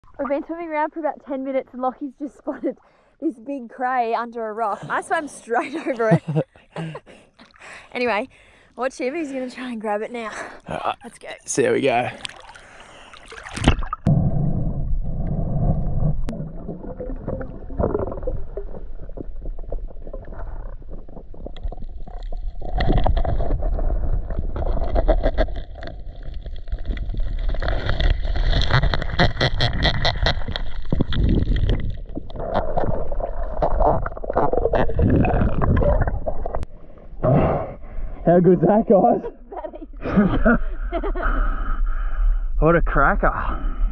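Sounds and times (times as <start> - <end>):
underwater clicks and bubbles: 12.1 - 36.7
underwater water rumble and gurgling: 13.1 - 38.2.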